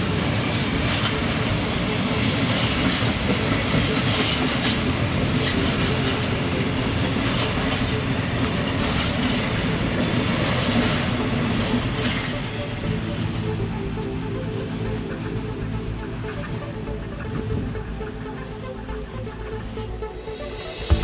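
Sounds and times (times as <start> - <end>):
train wheels clicking over rails: 0.0 - 13.6
train running past: 0.0 - 21.0.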